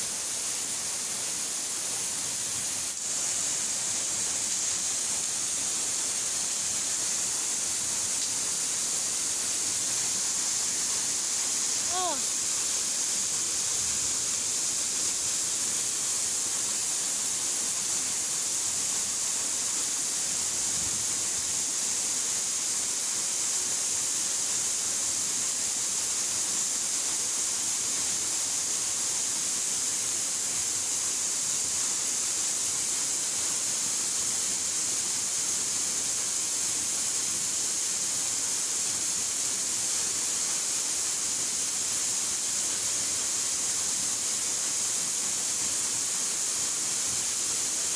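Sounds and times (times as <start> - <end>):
waterfall rushing: 0.0 - 23.7.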